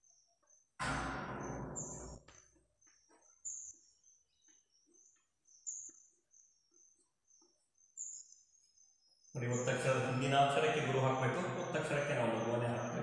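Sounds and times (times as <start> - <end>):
high chirping: 1.4 - 13.0.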